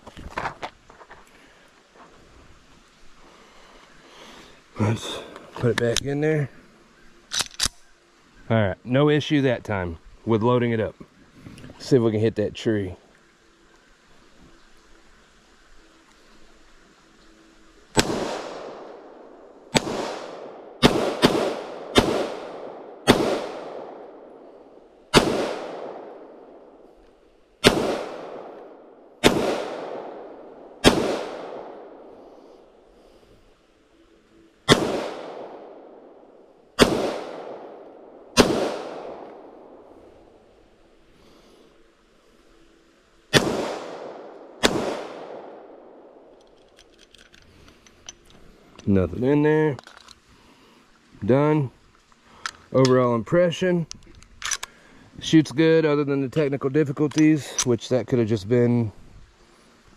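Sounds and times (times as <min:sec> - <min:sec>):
pistol shots with echo: 0:18.0 - 0:24.3, 0:25.1 - 0:26.6, 0:27.6 - 0:32.1, 0:34.7 - 0:36.2, 0:36.8 - 0:39.8, 0:43.3 - 0:46.2
faint clicks: 0:51.9 - 0:53.0.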